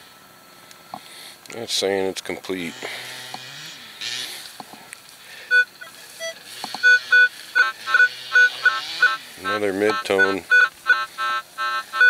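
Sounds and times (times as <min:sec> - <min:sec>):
metal detector two-tone beeps: 0:05.5 - 0:12.0.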